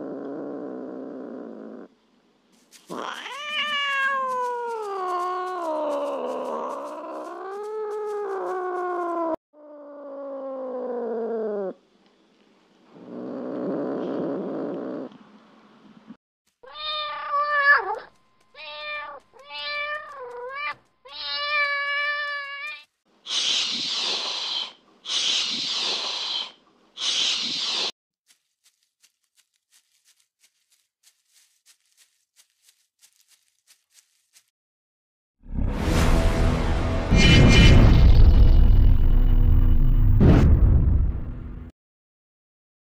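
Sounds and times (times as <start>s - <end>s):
cat growling: 0.0s - 1.9s, 2.9s - 11.8s, 12.9s - 15.2s
cat hissing: 2.8s - 7.6s, 23.2s - 27.9s
cat meowing: 2.9s - 9.4s, 16.6s - 22.8s.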